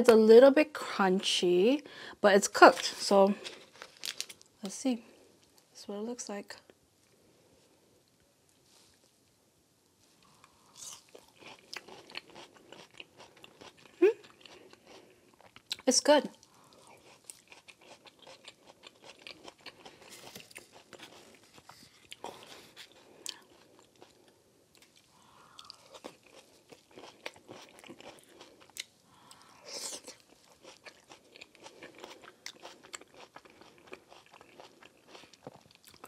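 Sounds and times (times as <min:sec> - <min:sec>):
chewing onion crunches: 0:10.2 - 0:36.0.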